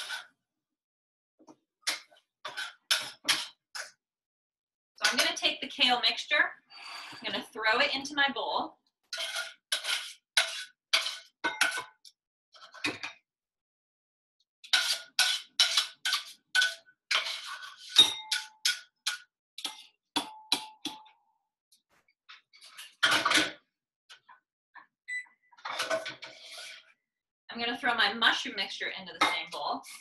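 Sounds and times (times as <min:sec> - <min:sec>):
utensil scraping metal pan: 0:09.1 - 0:11.9, 0:14.6 - 0:20.0.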